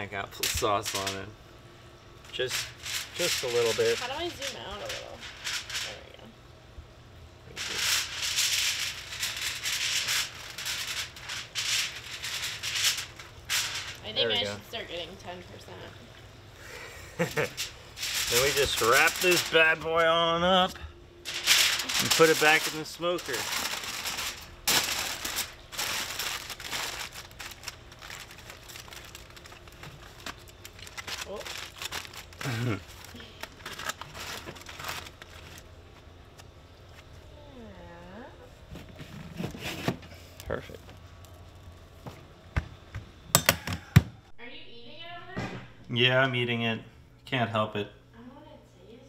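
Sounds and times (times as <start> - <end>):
aluminium foil crinkling: 0.3 - 1.3, 2.2 - 6.3, 7.5 - 15.9, 17.2 - 37.2
shaker rattling over food: 2.3 - 6.2, 7.5 - 14.1, 17.2 - 20.0, 21.3 - 35.6.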